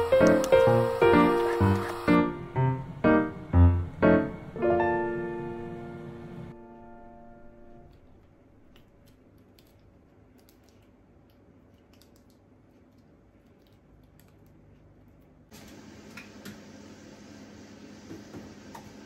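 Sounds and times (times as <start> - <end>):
steady hum: 0.0 - 8.8.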